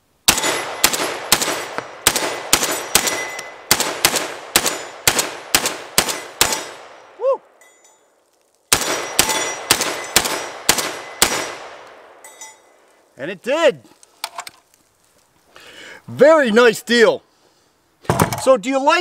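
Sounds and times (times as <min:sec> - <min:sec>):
shotgun firing rapidly: 0:00.3 - 0:06.9, 0:08.7 - 0:11.8.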